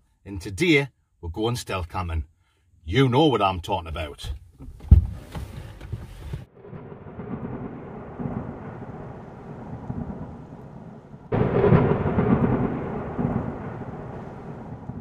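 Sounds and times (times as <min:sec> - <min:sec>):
thunder rolling: 0:06.4 - 0:15.0
steady rain: 0:06.7 - 0:15.0.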